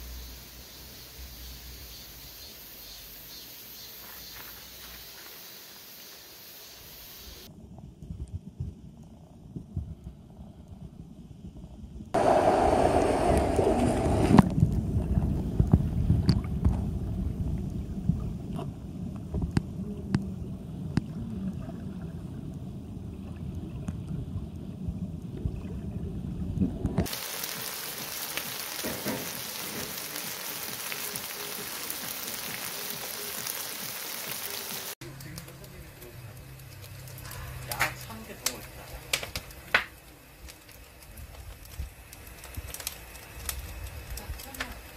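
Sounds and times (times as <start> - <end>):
steady bright hiss: 0.0 - 7.5, 27.1 - 37.0
muffled underwater stream rumble: 7.5 - 28.7.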